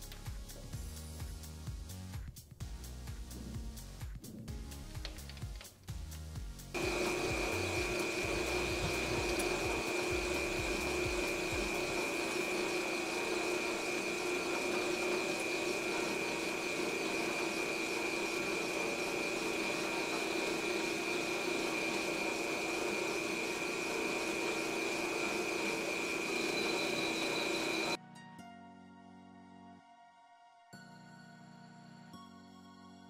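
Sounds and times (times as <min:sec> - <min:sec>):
metal lathe cutting aluminum: 0:06.8 - 0:28.0.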